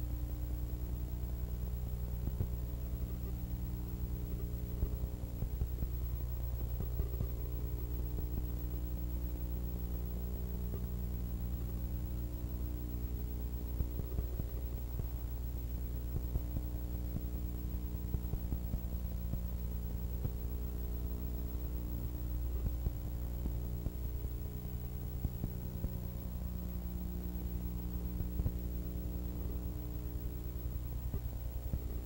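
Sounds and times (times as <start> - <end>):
electrical mains hum: 0.0 - 32.0
faint clicks and crackle: 0.3 - 32.0.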